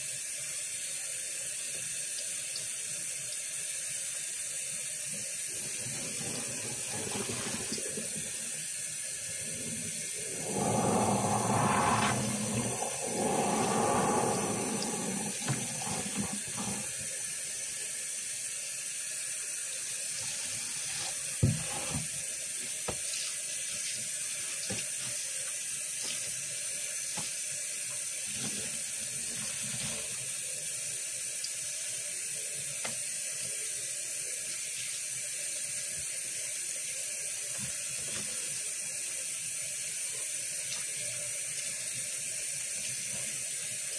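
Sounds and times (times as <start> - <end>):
faucet running into water: 0.0 - 43.9
sponge squelching: 5.5 - 8.4, 9.4 - 17.0.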